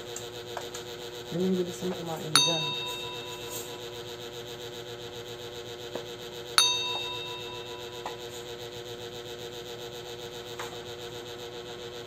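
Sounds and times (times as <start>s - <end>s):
steady hum: 1.4s - 4.4s, 6.6s - 8.7s
metallic ding: 2.4s - 4.0s, 6.6s - 8.4s.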